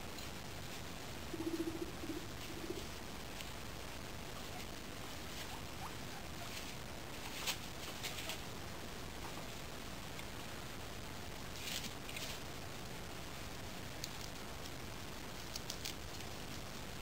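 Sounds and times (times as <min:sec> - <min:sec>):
guinea pig purring: 0:01.2 - 0:03.0, 0:04.3 - 0:08.4, 0:15.3 - 0:16.6
rustling in wood shavings: 0:04.4 - 0:08.5.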